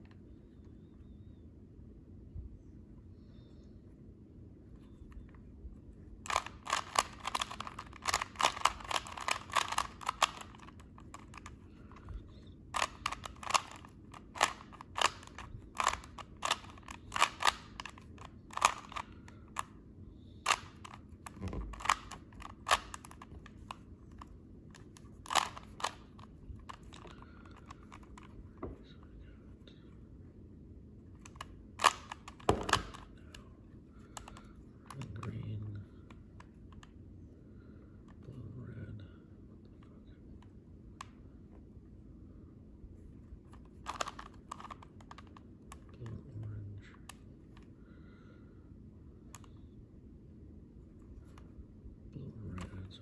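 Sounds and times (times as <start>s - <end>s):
puzzle cube layers clicking: 6.3s - 19.7s, 20.4s - 28.4s, 31.2s - 33.4s, 43.6s - 46.2s.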